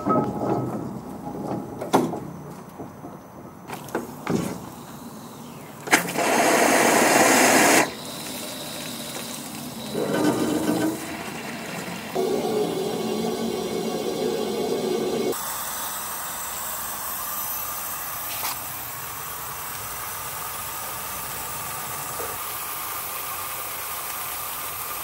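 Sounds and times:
rush of steam and water: 5.9s - 25.0s.

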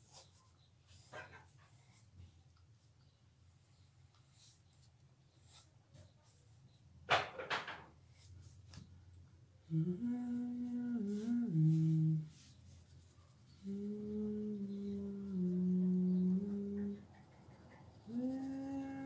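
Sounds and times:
person humming a slow tune: 9.6s - 12.4s, 13.6s - 17.0s, 18.1s - 19.0s.

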